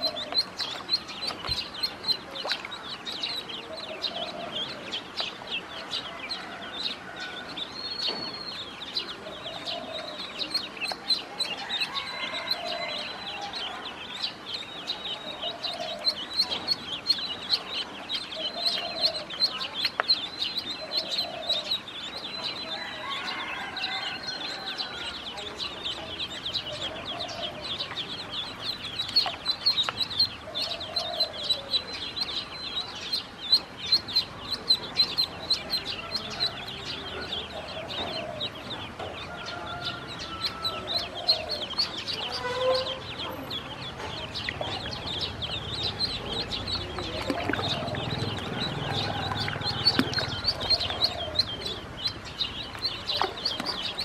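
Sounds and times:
ducklings peeping: 0.0 - 54.0.

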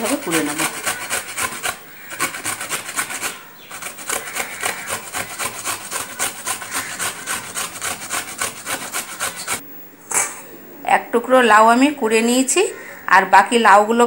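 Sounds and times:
gourd scraping on metal grater: 0.0 - 9.6.

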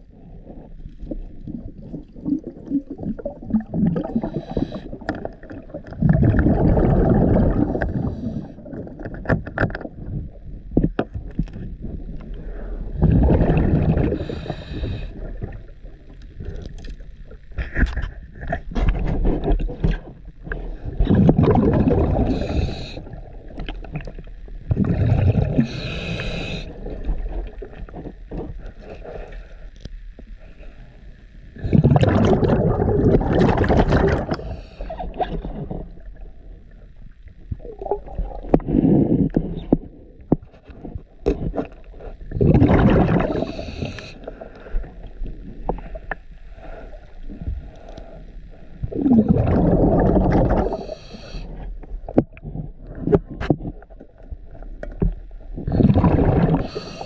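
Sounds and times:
bubbling diver exhalations: 1.1 - 8.8, 12.5 - 15.6, 20.9 - 23.3, 24.7 - 27.1, 31.6 - 36.0, 42.2 - 44.1, 48.8 - 51.5, 55.6 - 57.0
regulator hissing inhalations: 4.1 - 5.0, 14.2 - 15.3, 22.3 - 23.1, 25.6 - 26.8, 34.3 - 35.0, 43.3 - 44.9, 50.6 - 51.6, 56.6 - 57.0.

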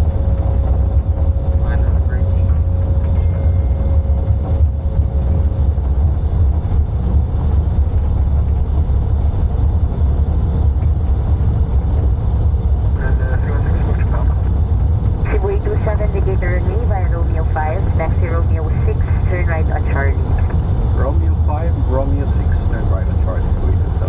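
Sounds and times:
airplane cockpit low rumble: 0.0 - 24.0.

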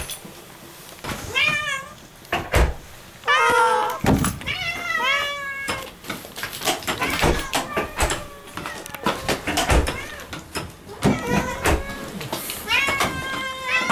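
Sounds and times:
cat meowing: 1.3 - 2.0, 3.2 - 6.0, 7.0 - 13.9.

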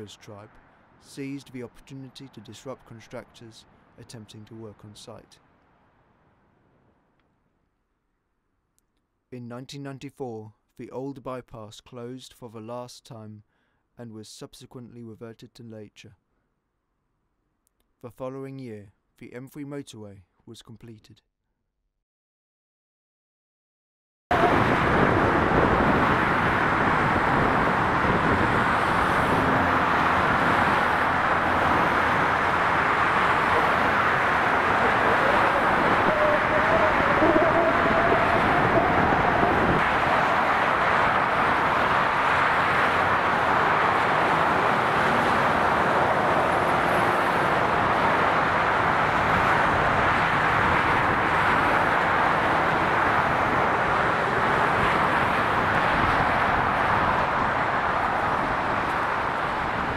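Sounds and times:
fast motorway traffic: 0.0 - 9.3, 24.3 - 59.9.

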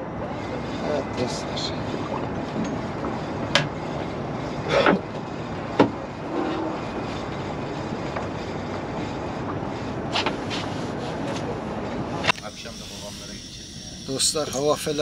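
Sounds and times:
steady wind: 0.0 - 15.0
sharp knocks and clatters: 2.0 - 11.5.

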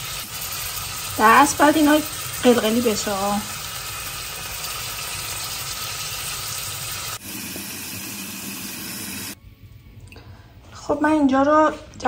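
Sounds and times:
food sizzling on stovetop: 0.0 - 9.4.

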